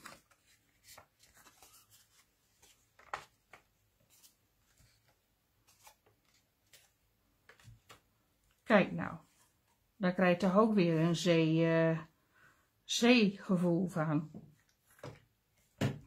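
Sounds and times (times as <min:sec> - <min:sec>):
card rustling and tapping: 0:00.0 - 0:08.2.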